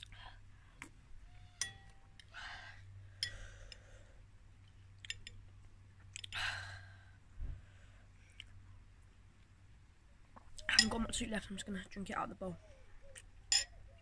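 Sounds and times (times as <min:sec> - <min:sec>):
spoon clinking on ceramic bowl: 0:01.6 - 0:02.0, 0:10.8 - 0:11.1, 0:13.5 - 0:13.7.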